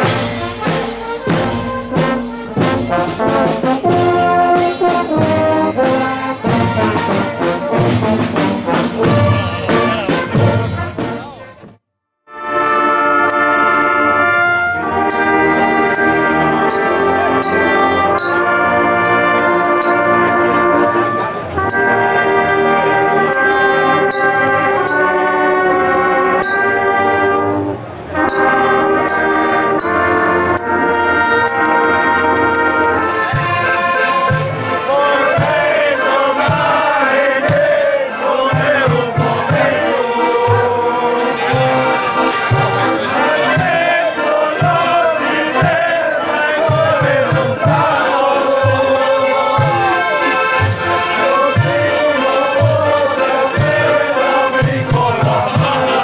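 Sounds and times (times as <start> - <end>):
drum and tambourine beat: 0.0 - 11.3, 31.5 - 40.8, 41.4 - 44.0, 44.6 - 46.0, 46.6 - 56.0
brass band playing: 0.0 - 56.0
men singing together: 33.2 - 56.0.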